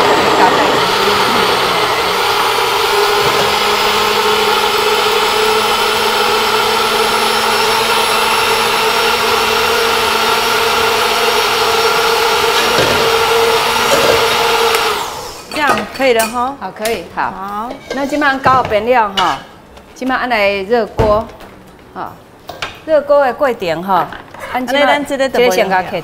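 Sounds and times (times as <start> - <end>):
blender running: 0.0 - 15.5.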